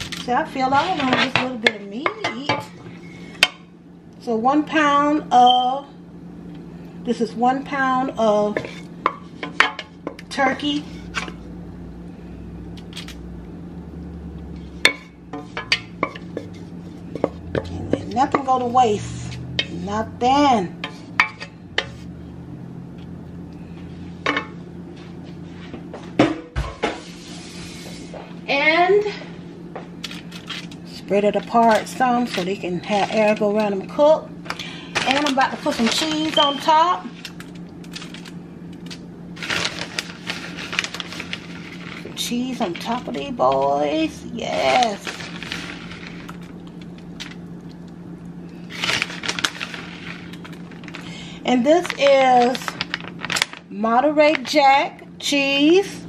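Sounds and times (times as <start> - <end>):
steady low hum: 0.0 - 56.0
crackles and rustling of sprinkled cheese: 37.1 - 43.4, 44.4 - 54.6.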